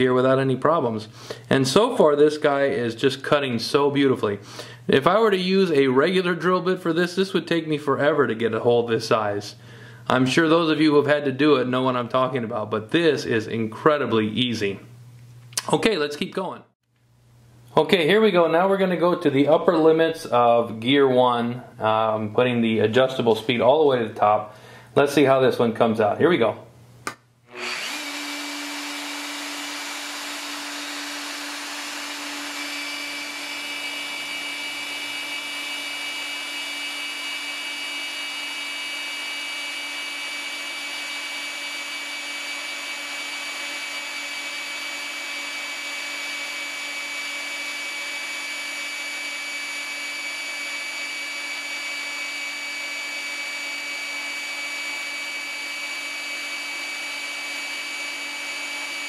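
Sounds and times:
drill motor whining: 27.5 - 59.0.

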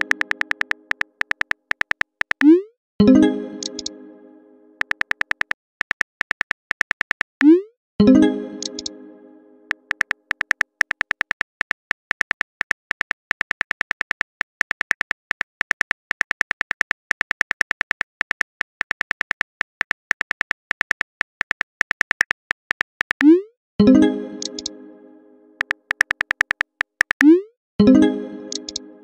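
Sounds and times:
keyboard typing clicks: 0.0 - 2.7, 3.6 - 4.0, 4.8 - 7.6, 8.6 - 9.0, 9.7 - 23.4, 24.4 - 24.8, 25.6 - 27.4, 28.5 - 28.9.

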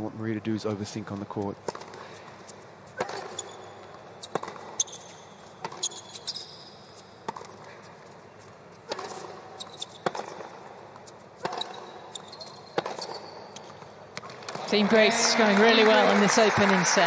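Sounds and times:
shoes squeaking on court: 1.0 - 14.8
racquet striking tennis ball: 1.6 - 2.1, 2.9 - 7.7, 8.8 - 14.8
tennis ball bouncing: 1.6 - 15.0.

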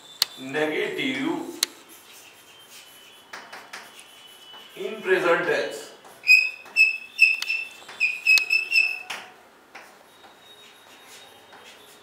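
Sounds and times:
chalk squeaking on a blackboard: 0.0 - 5.2, 5.9 - 12.0
faint chalk scratches: 1.4 - 5.2, 9.8 - 12.0.

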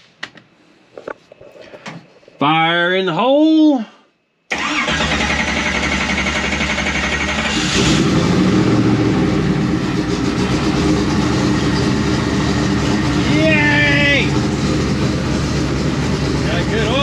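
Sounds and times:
car engine starting and idling: 4.5 - 17.0.

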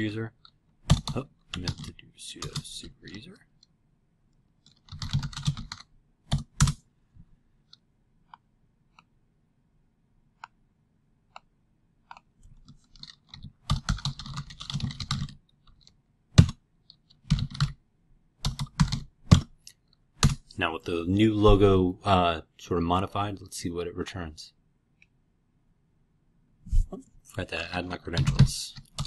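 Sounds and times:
typing on computer keyboard: 0.4 - 2.8, 4.6 - 6.8, 12.1 - 17.8, 18.4 - 19.6, 28.2 - 29.0.

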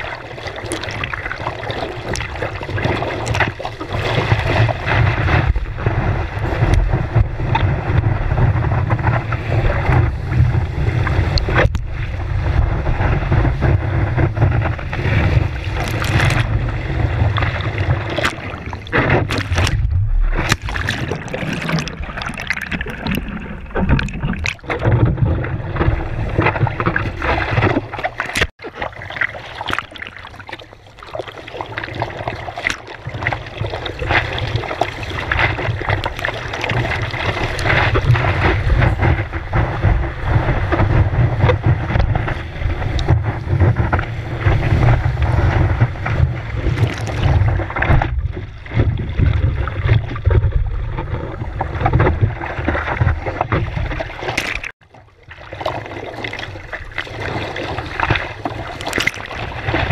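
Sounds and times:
seawater rushing and splashing: 0.0 - 59.9
wind buffeting microphone: 4.4 - 22.2.

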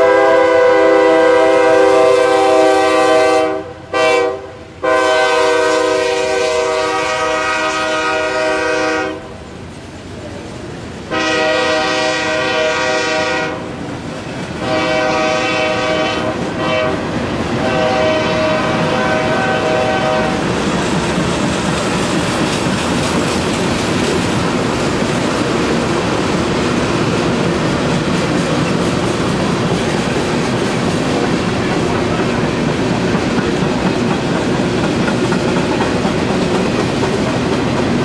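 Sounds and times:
locomotive horn: 0.0 - 9.4, 11.1 - 13.8, 14.6 - 20.6
freight train wheels on rails: 0.0 - 38.0.

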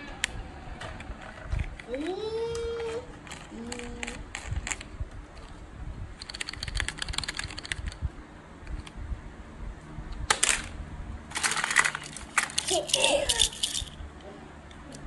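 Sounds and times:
plastic toy parts clicking: 2.8 - 5.5, 11.3 - 14.0.

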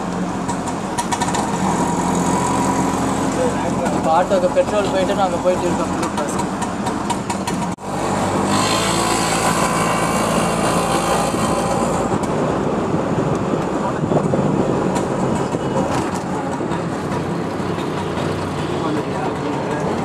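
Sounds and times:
auto-rickshaw engine running: 0.0 - 20.0
road noise: 0.0 - 20.0
wind noise: 9.5 - 18.2.

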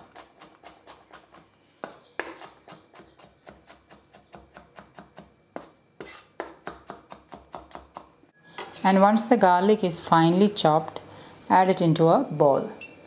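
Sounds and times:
knife chopping on wooden board: 0.0 - 8.1.

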